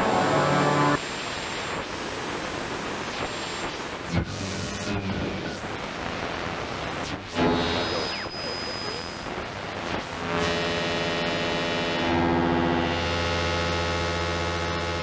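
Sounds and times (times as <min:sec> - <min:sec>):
buzzing hum: 0:00.0 - 0:02.0, 0:03.1 - 0:15.0
radio static and hiss: 0:00.0 - 0:13.0.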